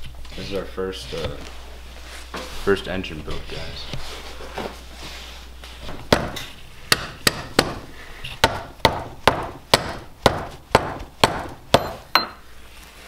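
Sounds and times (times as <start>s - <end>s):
hammer knocking on piston: 6.1s - 7.8s, 8.4s - 12.4s.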